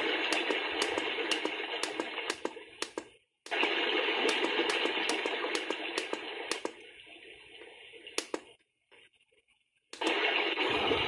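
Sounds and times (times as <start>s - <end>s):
quick clicks: 0.0s - 3.7s, 4.3s - 6.8s, 8.2s - 8.5s
running water from clock speaker: 0.0s - 6.8s, 8.1s - 8.5s.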